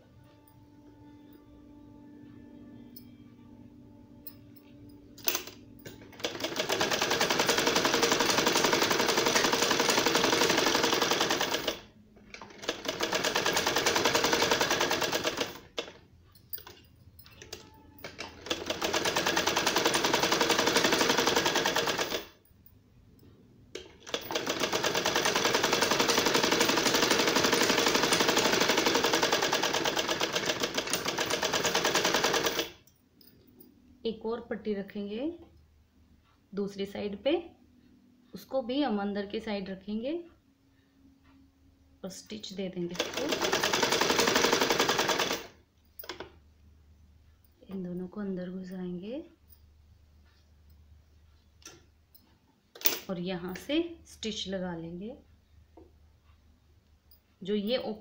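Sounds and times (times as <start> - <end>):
sewing machine stitching: 5.2 - 16.0, 17.4 - 22.4, 23.8 - 32.8, 42.9 - 46.3.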